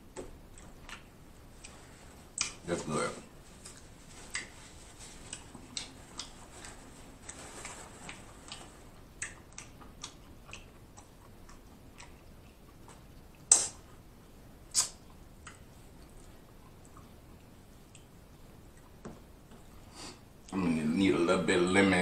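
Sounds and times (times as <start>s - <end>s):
person chewing with wet mouth clicks: 0.1s - 2.6s, 3.6s - 4.5s, 5.3s - 6.7s, 7.6s - 14.0s, 14.7s - 19.7s.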